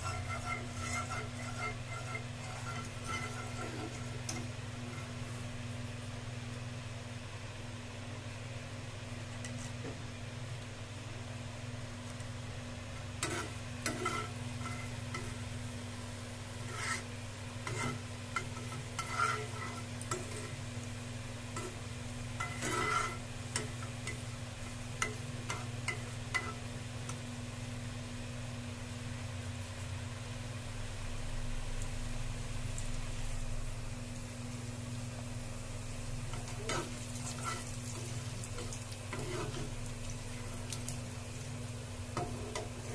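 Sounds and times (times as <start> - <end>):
metal spatula scraping a pan: 0.0 - 5.2, 13.2 - 15.5, 16.6 - 20.7, 21.5 - 21.8, 22.4 - 24.2, 25.0 - 26.7, 36.3 - 39.8
spices frying in oil: 0.0 - 7.3, 8.8 - 42.9.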